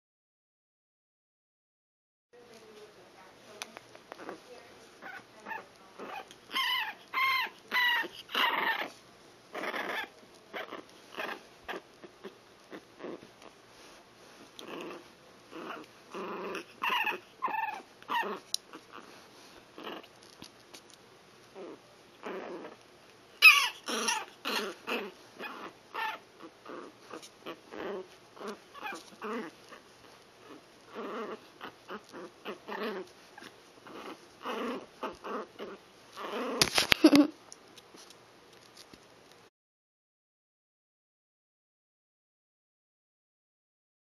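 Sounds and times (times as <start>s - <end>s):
puppies whimpering and squealing: 5.0s - 9.0s, 15.6s - 19.1s, 23.4s - 37.2s.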